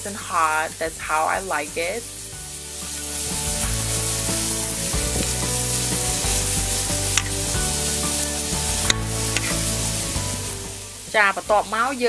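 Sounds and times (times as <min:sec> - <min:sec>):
chicken sizzling on grill: 0:00.0 - 0:12.0
sharp click: 0:08.9 - 0:09.6.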